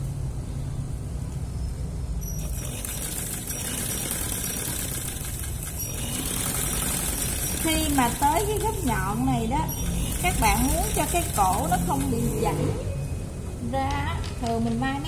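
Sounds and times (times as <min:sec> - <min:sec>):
sewing machine running: 0:02.4 - 0:12.8.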